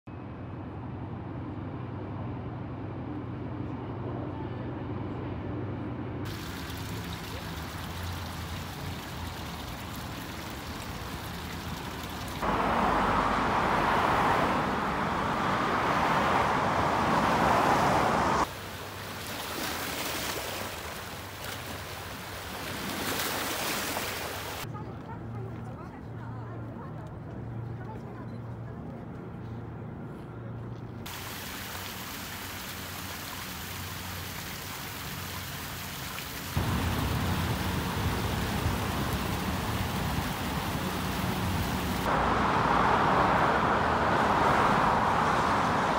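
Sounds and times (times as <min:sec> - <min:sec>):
low traffic hum: 0:00.1 - 0:45.9
fountain water pouring and splashing: 0:06.3 - 0:12.5, 0:18.4 - 0:24.7, 0:31.1 - 0:42.1
waves splashing over rocks: 0:14.6 - 0:24.6, 0:31.1 - 0:42.1.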